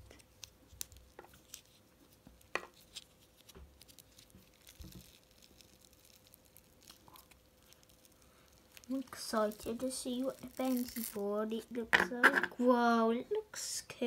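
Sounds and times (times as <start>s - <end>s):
wet handling noises: 2.4s - 12.4s.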